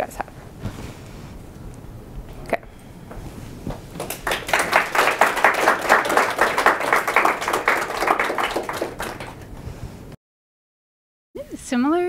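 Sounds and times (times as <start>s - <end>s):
audience applauding: 4.0s - 9.6s.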